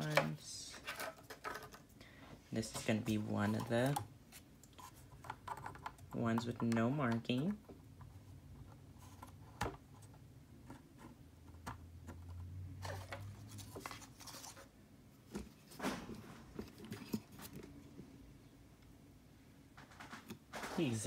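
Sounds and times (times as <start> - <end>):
plastic scraping: 15.3 - 17.9.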